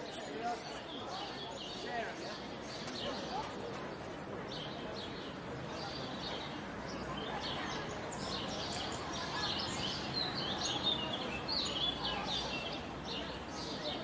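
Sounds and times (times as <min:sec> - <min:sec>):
small birds chirping: 0:00.0 - 0:14.0
steady background noise: 0:00.0 - 0:14.0.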